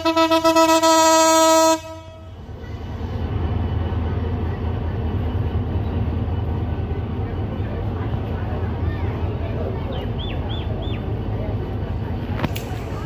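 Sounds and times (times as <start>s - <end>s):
train horn: 0.0s - 2.4s
diesel locomotive rumble: 0.0s - 13.0s.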